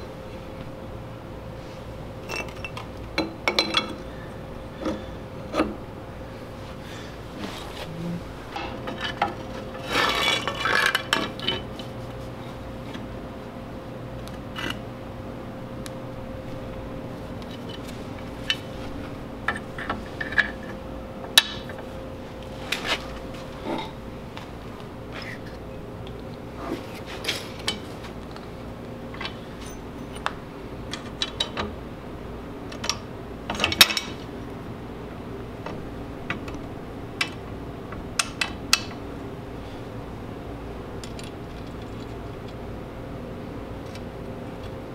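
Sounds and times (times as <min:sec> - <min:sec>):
faint steady hum: 0:00.0 - 0:44.9
steel parts and tool clinking: 0:02.2 - 0:04.0, 0:29.2 - 0:30.3.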